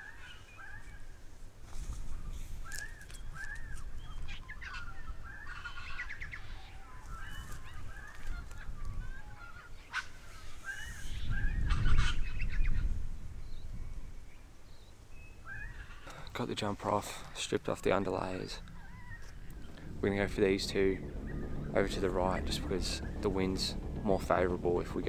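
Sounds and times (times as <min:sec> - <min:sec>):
wild birds calling: 0:00.0 - 0:01.3, 0:02.1 - 0:25.0
low rumble on microphone: 0:17.6 - 0:25.0.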